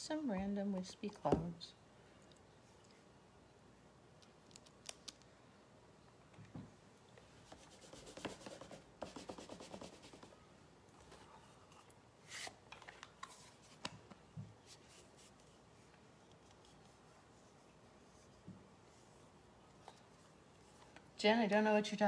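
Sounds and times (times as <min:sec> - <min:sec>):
rubbing strokes on paper: 0:07.4 - 0:10.4, 0:14.6 - 0:19.5.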